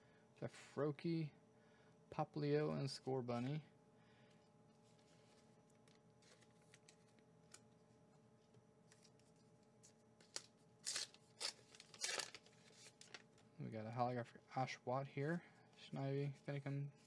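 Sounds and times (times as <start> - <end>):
faint steady hum: 0.0 - 17.0
plastic card pack crinkling: 4.9 - 7.8, 8.8 - 13.5.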